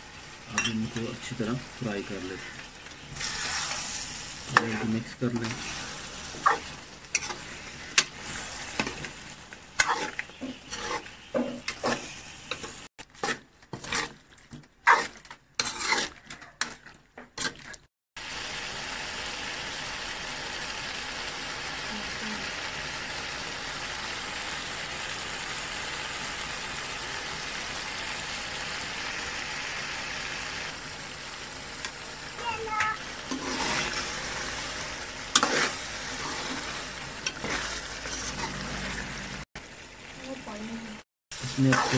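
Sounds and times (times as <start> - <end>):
food sizzling in pot: 0.0 - 41.9
metal spoon scraping pot: 4.5 - 8.2, 9.8 - 14.2, 14.8 - 17.8, 35.3 - 39.0.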